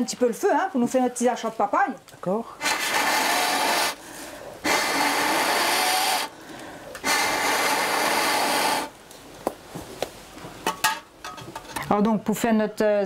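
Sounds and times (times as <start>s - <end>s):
blowing through metal tube: 2.6s - 4.0s, 4.6s - 6.4s, 7.0s - 8.9s.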